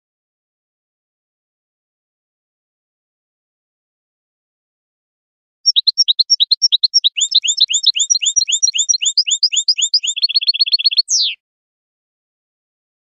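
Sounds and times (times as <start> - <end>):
goldfinch twittering song: 5.7 - 11.4.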